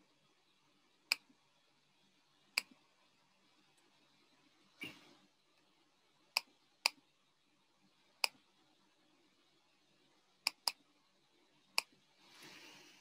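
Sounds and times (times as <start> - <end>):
computer mouse clicking: 10.4 - 10.8.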